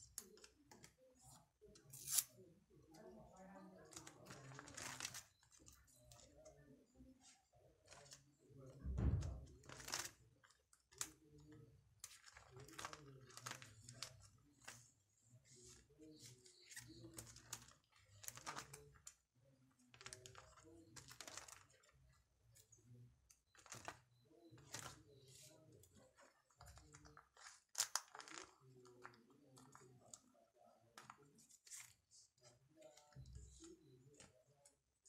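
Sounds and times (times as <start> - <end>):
cards rustling in plastic binder: 3.8 - 6.4, 9.6 - 11.3, 12.0 - 14.9, 15.5 - 19.2, 19.8 - 22.8, 23.4 - 34.8.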